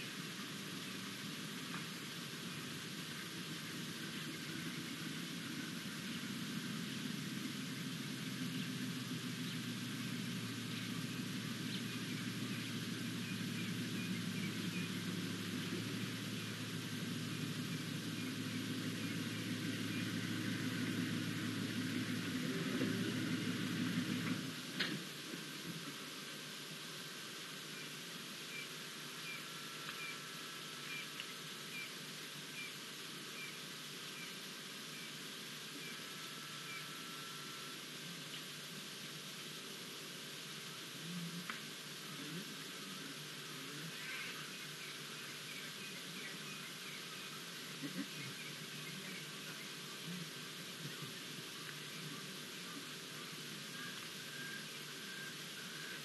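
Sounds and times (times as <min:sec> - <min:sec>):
low hum and hiss: 0:00.0 - 0:56.0
faint high chirps: 0:27.7 - 0:38.4.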